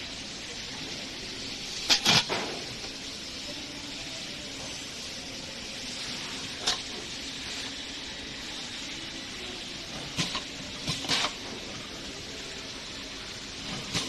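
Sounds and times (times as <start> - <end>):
machine hiss and low hum: 0.0 - 14.0.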